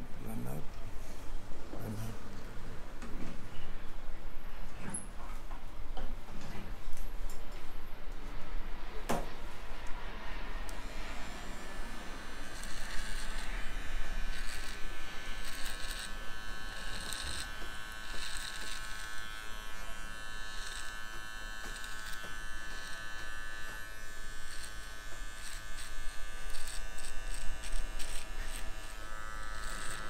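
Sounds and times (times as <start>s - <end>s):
electric hair trimmer buzzing: 10.7s - 30.0s.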